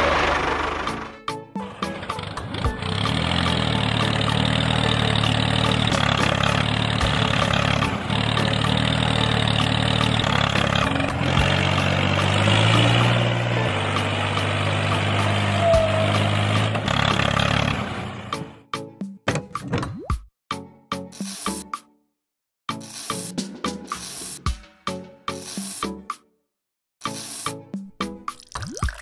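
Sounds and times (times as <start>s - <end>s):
tractor engine running: 0.0s - 18.6s.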